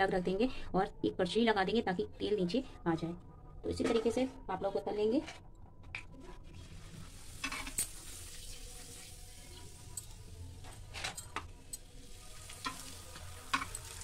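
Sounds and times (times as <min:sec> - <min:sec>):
frying in hot oil sizzle: 0:06.6 - 0:14.0.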